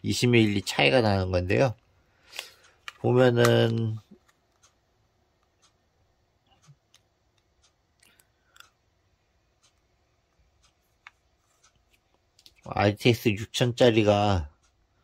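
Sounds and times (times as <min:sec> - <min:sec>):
faint plastic clicks and taps: 0:01.8 - 0:04.8, 0:09.6 - 0:12.7.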